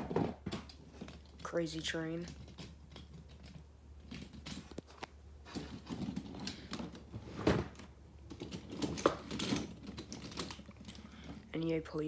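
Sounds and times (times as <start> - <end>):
toy trucks clacking and rattling: 8.2 - 11.5.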